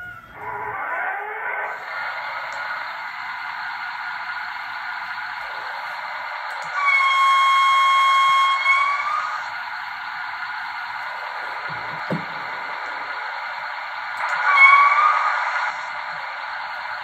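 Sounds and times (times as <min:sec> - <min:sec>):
model diesel engine running sound: 0:01.8 - 0:17.0.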